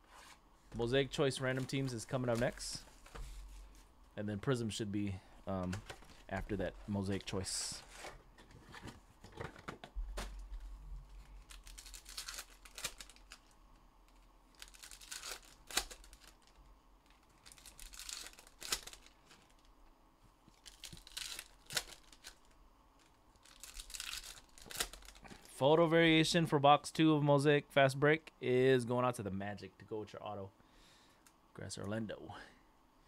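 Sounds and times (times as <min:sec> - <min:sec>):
plastic wrapping tearing and crinkling: 0:11.2 - 0:13.6, 0:14.5 - 0:19.7, 0:20.5 - 0:25.3.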